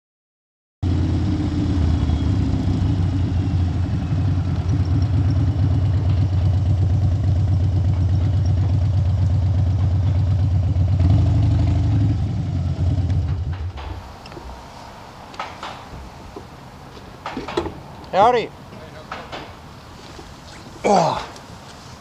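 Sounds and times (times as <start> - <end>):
motorcycle engine idling: 0.9 - 13.7.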